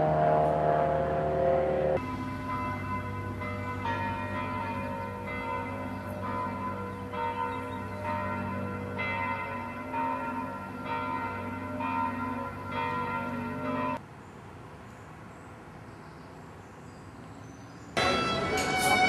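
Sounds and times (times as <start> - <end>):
church bells ringing: 0.0 - 14.0, 18.0 - 19.0.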